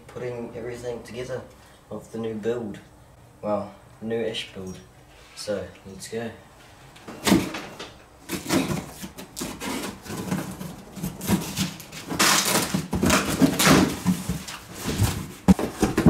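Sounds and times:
cutter slitting packing tape: 0:08.3 - 0:14.6
cardboard flaps knocking: 0:10.0 - 0:16.0.

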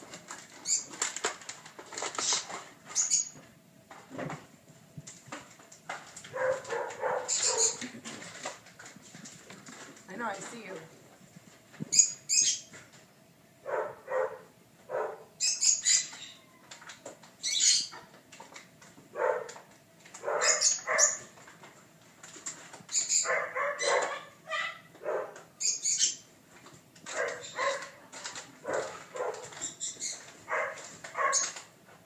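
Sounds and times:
puppy barking and yipping: 0:06.3 - 0:07.8, 0:13.7 - 0:15.3, 0:19.2 - 0:19.6, 0:20.2 - 0:21.3, 0:23.1 - 0:25.4, 0:27.1 - 0:28.0, 0:28.6 - 0:29.6, 0:30.5 - 0:31.6.

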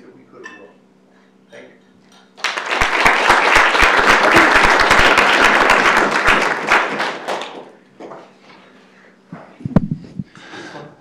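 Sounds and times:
audience applause: 0:02.4 - 0:07.8.

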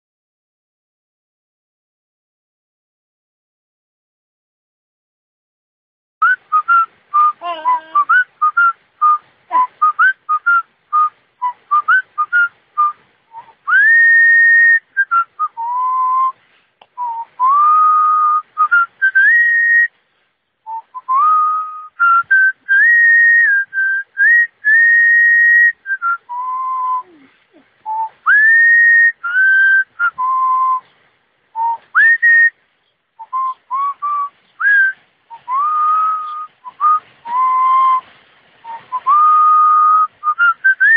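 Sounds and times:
person whistling a melody: 0:06.2 - 0:16.4, 0:17.0 - 0:19.9, 0:20.7 - 0:30.8, 0:31.6 - 0:32.6, 0:33.2 - 0:40.9.

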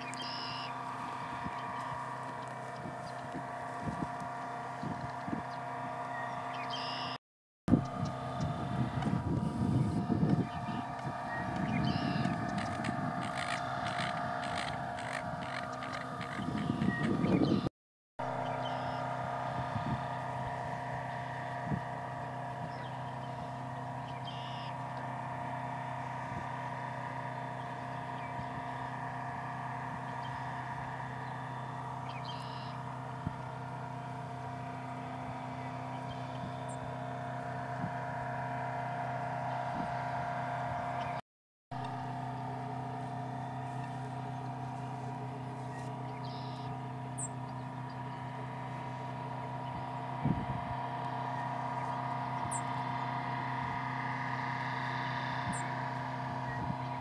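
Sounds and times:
engine idling hum: 0:00.0 - 0:57.0
faint bird chirps: 0:06.1 - 0:07.2, 0:45.6 - 0:48.2.

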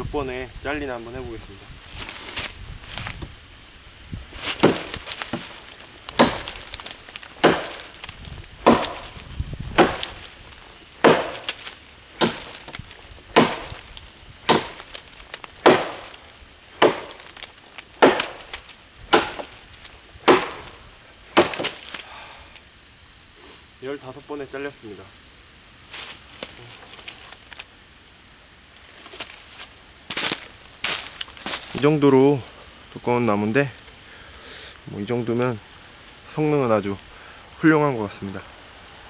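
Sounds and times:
blade chopping into wood: 0:04.4 - 0:19.6, 0:20.2 - 0:22.0.

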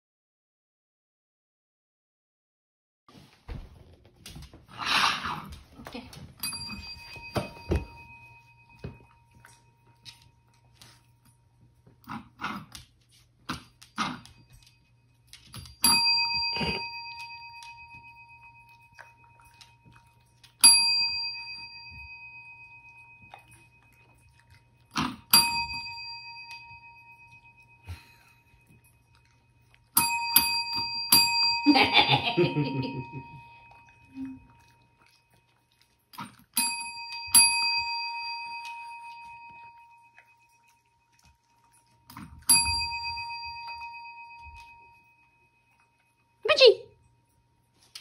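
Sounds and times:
service bell ringing: 0:06.4 - 0:10.4, 0:14.5 - 0:19.4, 0:20.6 - 0:24.0, 0:25.3 - 0:29.1, 0:30.0 - 0:34.1, 0:36.6 - 0:41.0, 0:42.4 - 0:46.6.

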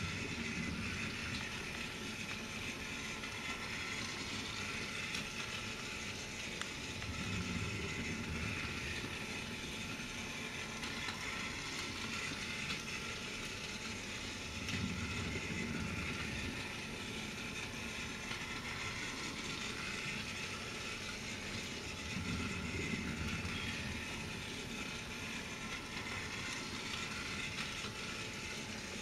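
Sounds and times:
toy train motor whirring: 0:00.0 - 0:29.0.

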